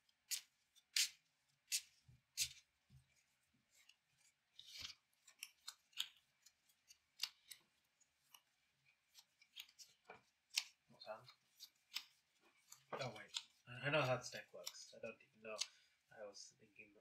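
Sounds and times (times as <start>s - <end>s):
cards being shuffled: 0.2s - 14.9s.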